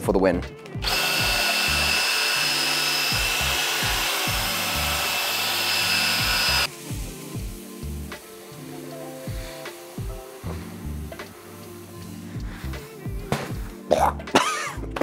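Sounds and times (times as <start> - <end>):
cordless drill whining: 0.8 - 6.7.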